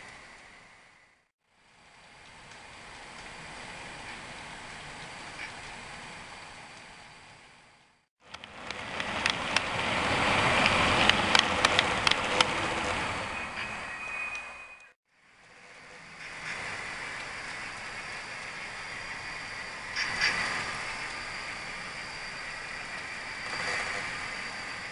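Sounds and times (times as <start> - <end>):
model train wheels rushing: 1.9 - 24.9
high wheel squeal: 11.8 - 15.0, 15.6 - 24.9.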